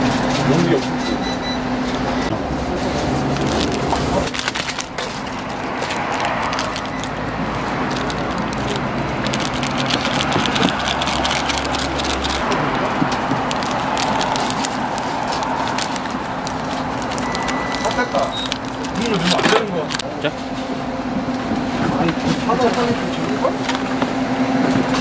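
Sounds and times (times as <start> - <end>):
plastic sachets crinkling and tearing: 2.7 - 20.4
sachet contents shaken out: 3.3 - 12.5, 13.1 - 20.0.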